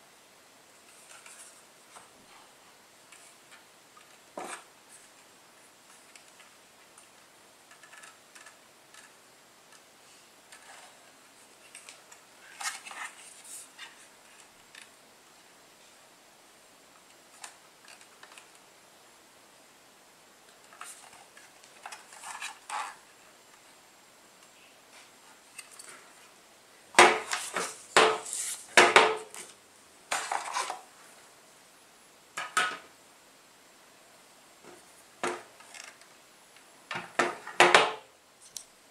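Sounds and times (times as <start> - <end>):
paper rustling: 0.8 - 2.4, 10.5 - 14.9, 20.7 - 23.0, 27.0 - 30.9
plastic router being handled: 6.1 - 9.2, 11.7 - 14.9, 20.6 - 23.0, 30.1 - 30.8.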